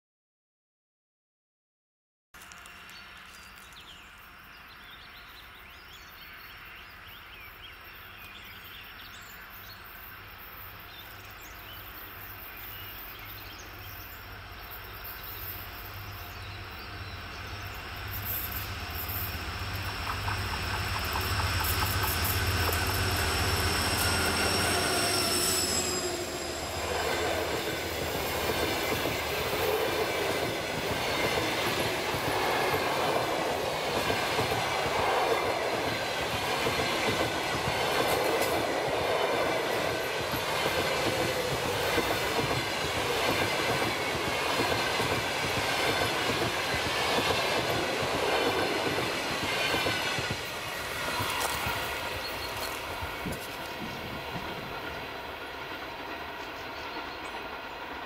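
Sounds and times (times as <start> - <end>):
diesel locomotive engine passing: 4.0 - 58.0
train coaches rumbling: 8.2 - 58.0
clickety-clack of wheels on rails: 15.1 - 58.0.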